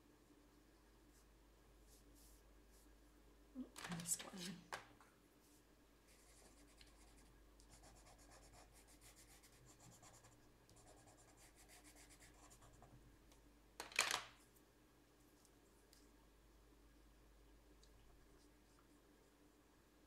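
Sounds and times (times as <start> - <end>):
colouring scratching on paper: 6.1 - 12.9.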